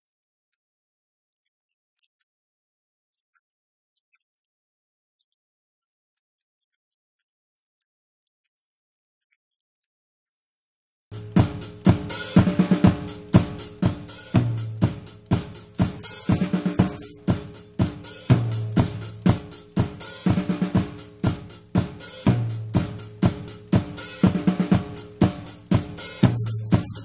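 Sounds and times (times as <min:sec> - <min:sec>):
drum kit playing a groove: 0:11.1 - 0:27.0
sustained bass notes: 0:11.2 - 0:27.0.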